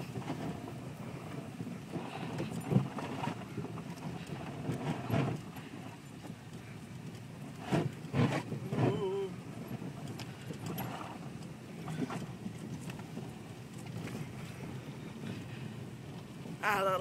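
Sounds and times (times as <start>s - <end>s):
car cabin rumble: 0.0s - 17.0s
car thumping over snow ruts: 7.3s - 14.6s.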